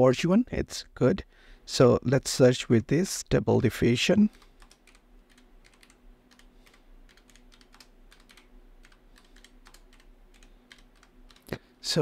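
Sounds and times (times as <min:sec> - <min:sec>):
typing on computer keyboard: 0:04.3 - 0:11.5.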